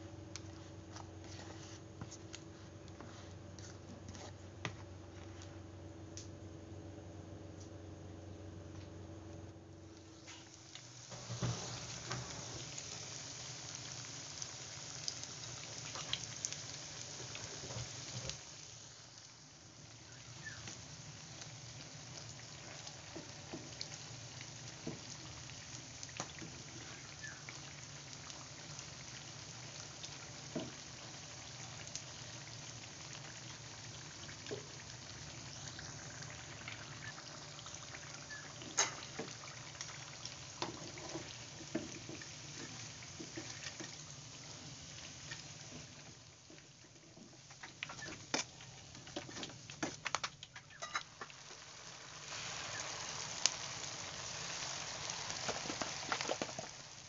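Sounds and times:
food sizzling in hot oil: 10.0s - 57.0s.

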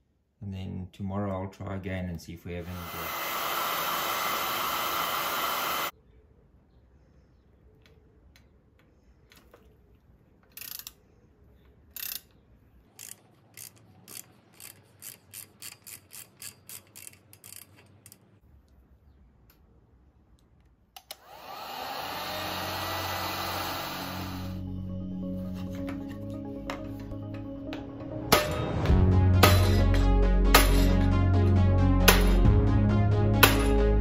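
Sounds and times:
heat gun blowing hiss: 2.6s - 5.9s, 21.1s - 24.6s
hex tool clicking: 11.9s - 18.4s.

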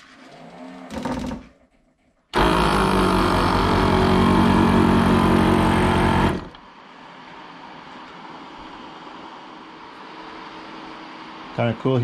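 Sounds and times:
air compressor running with rapid pulsing: 2.3s - 6.6s.

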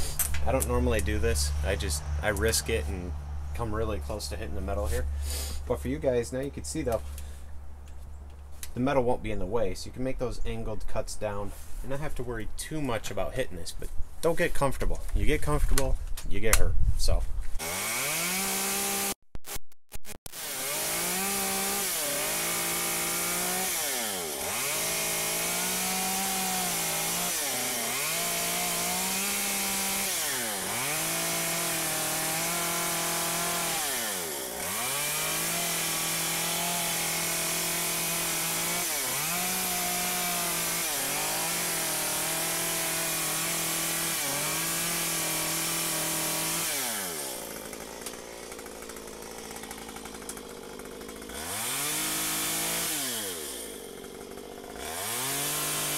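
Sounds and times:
chainsaw running at high revs: 17.6s - 19.2s, 20.3s - 55.9s.

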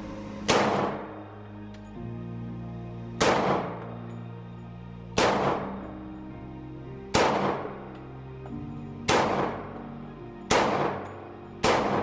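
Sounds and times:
background music: 0.0s - 12.0s
pistol shots echoing indoors: 0.5s - 1.2s, 3.2s - 3.9s, 5.2s - 5.8s, 7.1s - 8.0s, 9.0s - 9.9s, 10.5s - 12.0s.

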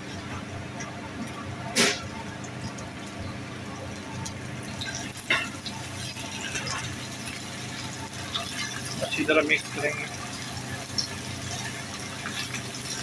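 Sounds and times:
okra sizzling in oil: 4.0s - 13.0s.

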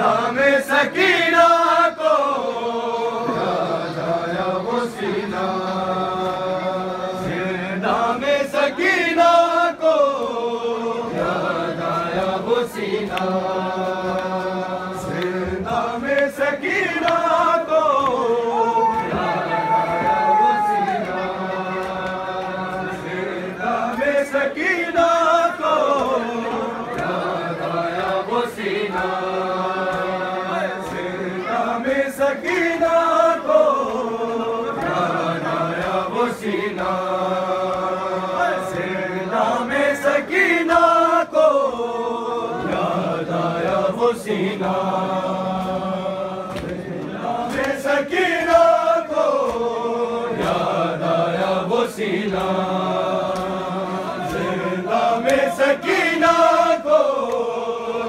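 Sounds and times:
men chanting a lament: 0.0s - 58.0s
sharp slaps: 45.5s - 49.7s, 50.3s - 50.9s, 52.2s - 54.6s, 55.2s - 55.7s.

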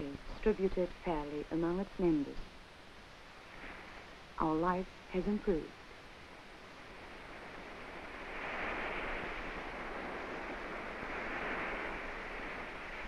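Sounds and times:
sea surf washing on beach: 3.4s - 4.2s, 5.1s - 13.0s.

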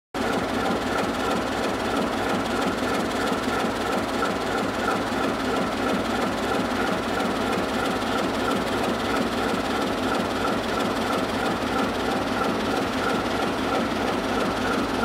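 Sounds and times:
diesel locomotive engines running: 0.2s - 15.0s.

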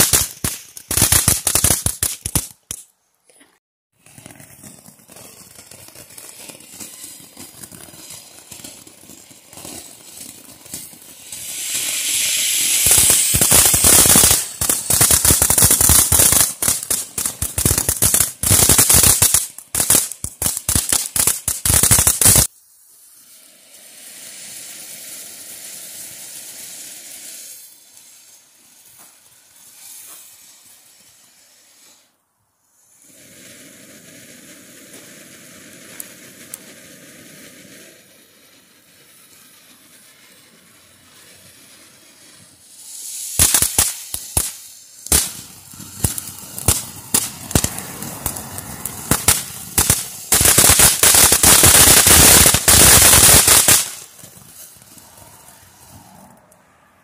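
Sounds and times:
firework crackling: 0.0s - 3.0s, 3.9s - 57.0s
firework fountains hissing: 4.0s - 56.4s.

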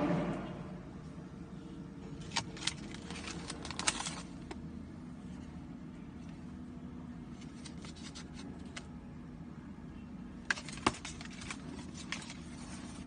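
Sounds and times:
steady low hum: 0.0s - 13.0s
foil bags crinkling: 2.2s - 4.7s, 7.3s - 8.9s, 10.4s - 13.0s.

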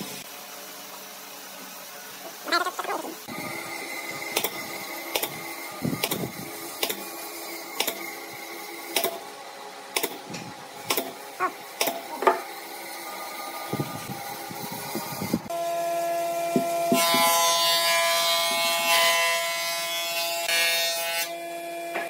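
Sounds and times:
pneumatic nail gun firing: 4.3s - 7.1s, 7.7s - 8.2s, 8.9s - 9.2s, 9.9s - 11.2s, 11.8s - 12.4s.

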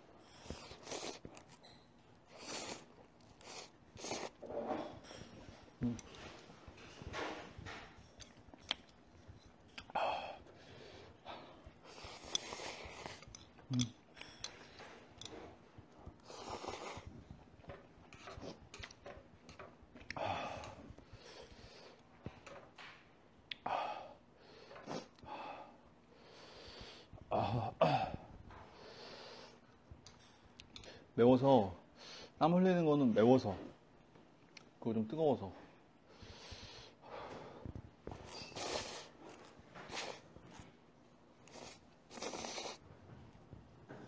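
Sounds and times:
person slurping noodles: 0.4s - 1.2s, 2.3s - 4.4s, 11.9s - 13.9s, 16.2s - 17.1s, 38.3s - 39.1s, 41.4s - 42.8s.

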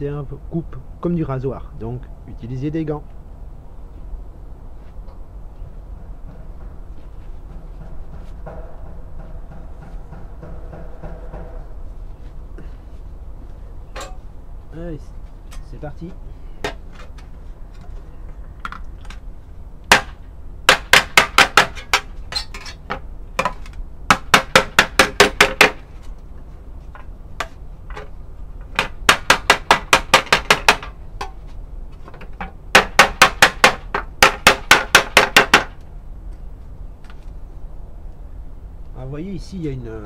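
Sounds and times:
hammer beating metal sheet: 7.5s - 11.8s, 19.9s - 22.1s, 24.1s - 25.8s, 28.8s - 31.0s, 32.7s - 35.8s.

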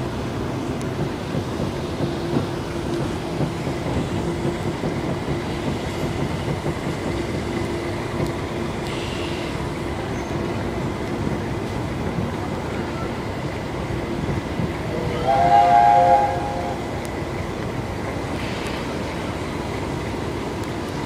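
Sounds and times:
passenger train rolling: 0.0s - 21.0s
train warning signal: 14.8s - 17.0s.

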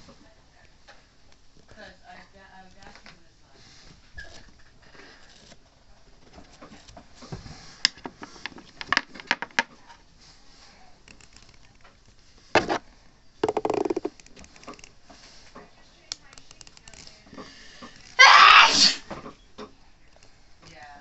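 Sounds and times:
fingers brushing microphone: 13.4s - 14.2s
fingers tapping on microphone: 13.4s - 14.2s.

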